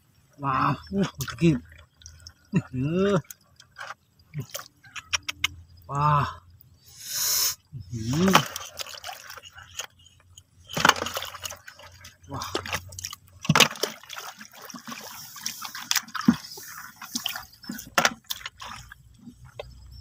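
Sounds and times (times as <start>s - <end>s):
shallow water splashing: 0.2s - 5.8s, 7.8s - 19.9s.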